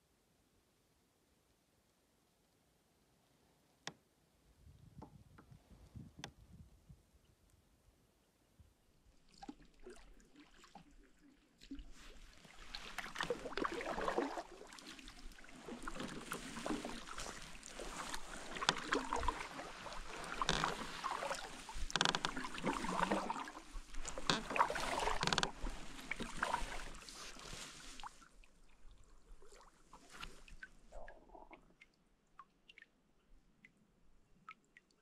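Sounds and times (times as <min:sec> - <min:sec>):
water splashes and drips: 0:09.1 - 0:35.0
paddle dipping into water: 0:09.2 - 0:31.9.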